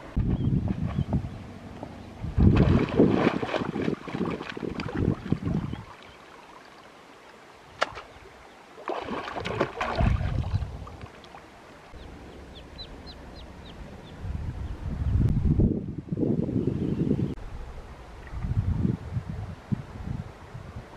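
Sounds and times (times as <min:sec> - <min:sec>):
wind rumble on microphone: 0:00.0 - 0:06.0, 0:09.1 - 0:11.2, 0:11.9 - 0:20.9
water splashing by hands: 0:02.4 - 0:06.8, 0:07.7 - 0:11.5
duckling peeping: 0:12.0 - 0:14.8.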